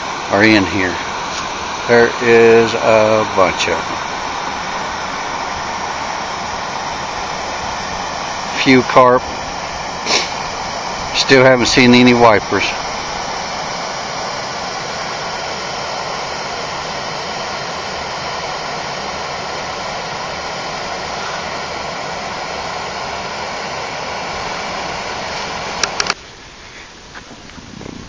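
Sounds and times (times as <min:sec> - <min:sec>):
loud steady rushing noise: 0:00.0 - 0:26.2
sharp clicks: 0:25.8 - 0:26.2.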